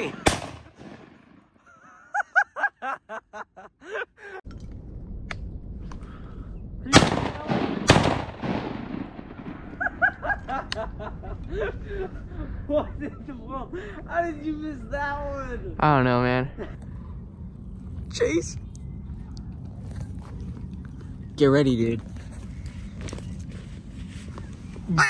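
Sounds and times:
shotgun blasts echoing: 0.0s - 1.6s, 6.9s - 9.8s.

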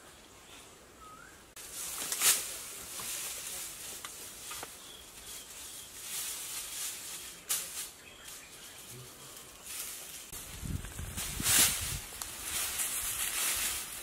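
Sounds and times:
faint bird chirps: 0.0s - 1.6s
dry grass thatch rustling: 1.6s - 14.0s.

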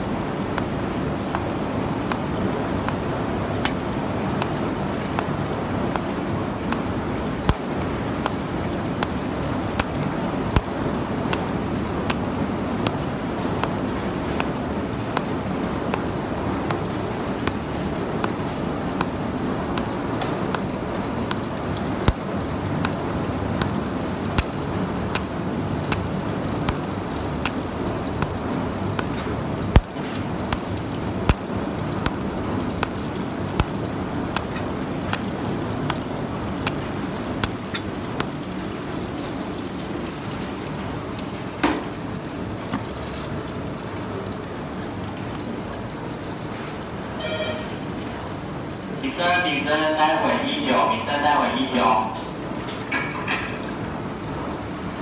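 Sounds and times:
welder arc pulse ticks: 9.0s - 9.2s, 9.8s - 11.5s, 12.1s - 13.0s, 13.6s - 20.7s, 21.3s - 23.0s, 23.6s - 27.6s, 28.2s - 28.4s, 29.0s - 37.6s.

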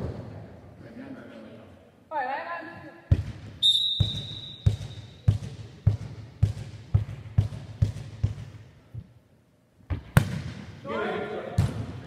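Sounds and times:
ball bouncing on wooden floor: 3.1s - 9.1s.

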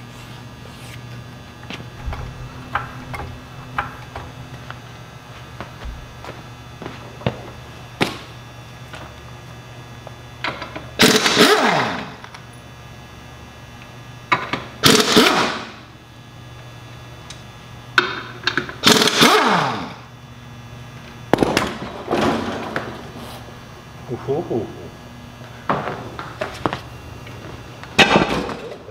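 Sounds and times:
pneumatic impact wrench bursts: 11.0s - 12.2s, 14.8s - 15.8s, 18.8s - 20.0s.

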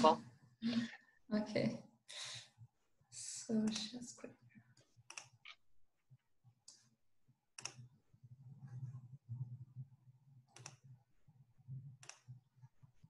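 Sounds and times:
computer mouse clicks: 5.0s - 5.6s, 7.6s - 7.9s, 10.5s - 11.0s, 12.0s - 12.4s.

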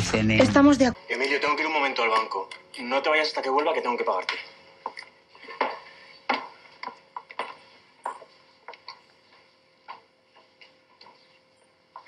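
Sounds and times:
shoe heels clicking on hard floor: 5.6s - 11.3s.

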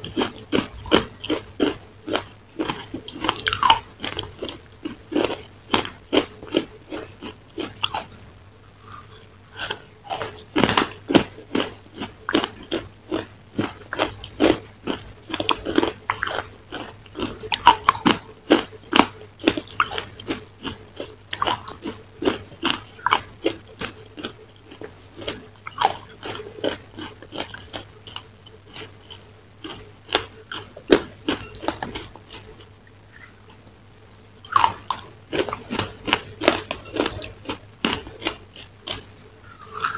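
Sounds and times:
crunching and chewing dessert: 0.0s - 39.9s.

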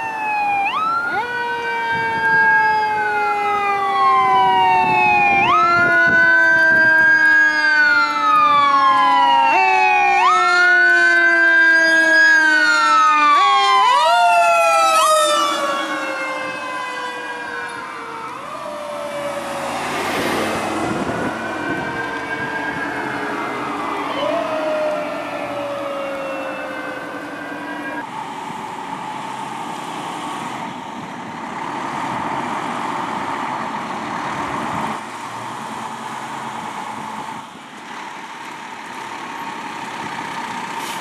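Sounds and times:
siren wailing: 0.0s - 28.3s.

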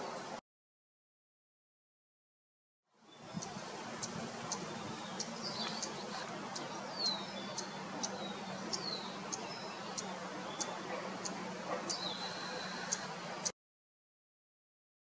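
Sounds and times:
small birds chirping: 3.0s - 13.5s.

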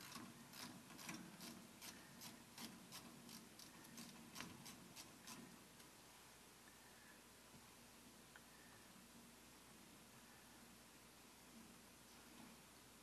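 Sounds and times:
faint steady clicking: 0.0s - 6.0s.

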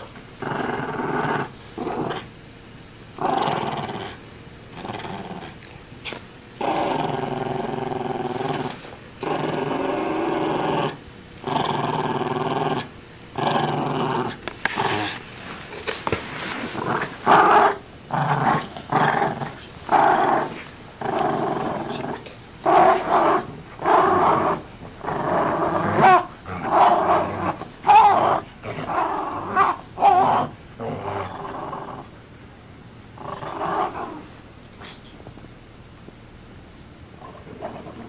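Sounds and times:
dog growling: 0.0s - 2.3s, 3.2s - 32.2s, 33.2s - 35.0s, 37.2s - 38.0s.

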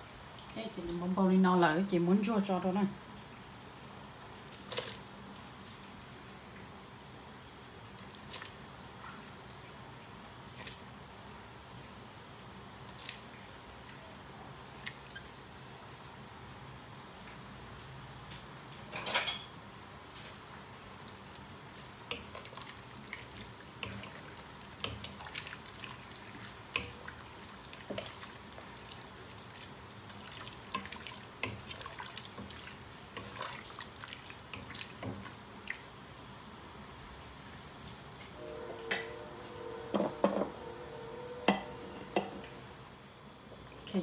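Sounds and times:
broth sloshing in a pot: 18.7s - 42.8s.

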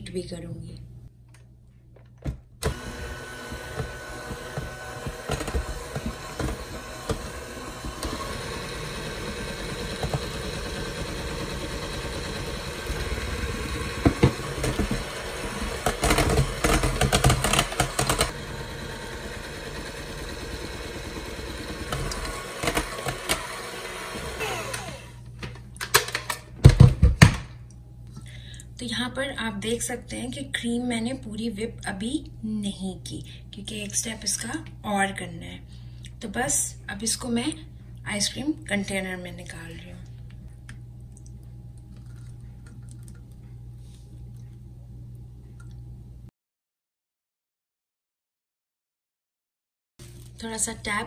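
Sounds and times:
electric hand mixer whipping cream: 2.6s - 25.2s.

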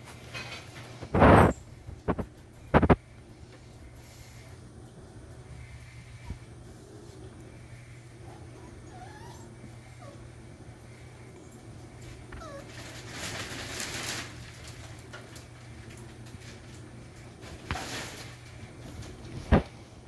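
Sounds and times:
puppies whimpering: 8.3s - 10.4s, 12.3s - 12.8s
rustling: 10.9s - 19.8s.

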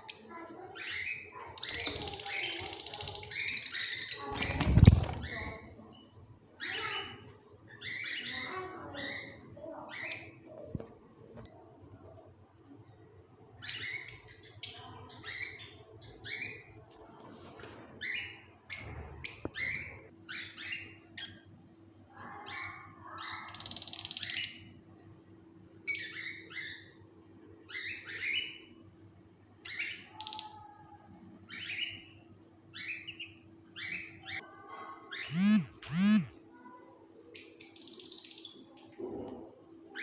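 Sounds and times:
parrots chirping: 35.2s - 36.4s.

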